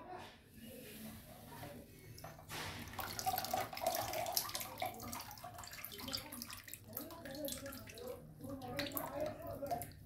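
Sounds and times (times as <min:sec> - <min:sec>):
water pouring and dripping: 0:02.1 - 0:10.0.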